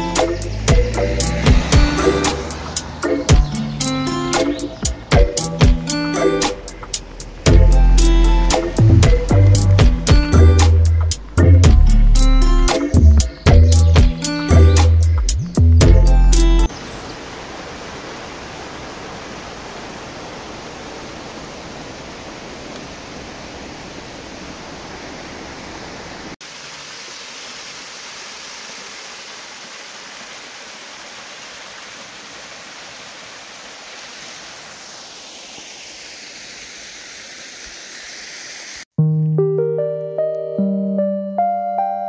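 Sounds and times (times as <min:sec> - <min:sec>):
small waterfall splashing into pool: 0:00.0 - 0:03.5, 0:16.7 - 0:38.9
water rushing over rocks: 0:00.0 - 0:11.4, 0:16.7 - 0:38.9.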